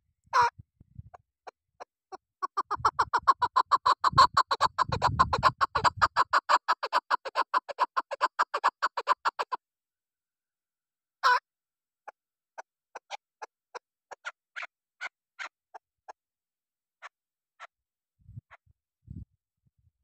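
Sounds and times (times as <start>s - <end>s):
partridge clucking calls: 2.1s - 9.6s, 13.0s - 15.5s.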